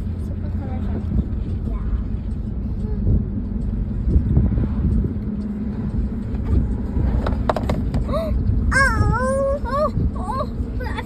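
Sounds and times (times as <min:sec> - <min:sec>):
car cabin road rumble: 0:00.0 - 0:11.0
young child's high-pitched voice: 0:08.7 - 0:11.0.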